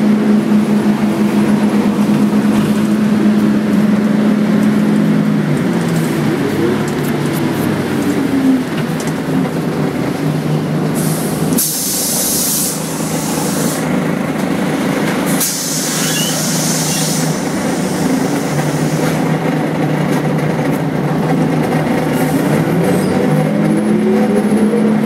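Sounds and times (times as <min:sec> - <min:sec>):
bus diesel engine running: 0:00.0 - 0:25.0
pneumatic air hiss: 0:11.0 - 0:13.8, 0:15.4 - 0:19.2.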